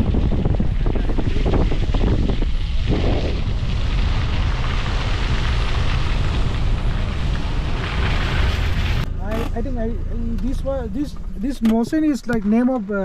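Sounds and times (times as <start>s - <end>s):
wind buffeting microphone: 0.0s - 9.1s
vehicle road noise: 0.0s - 13.0s.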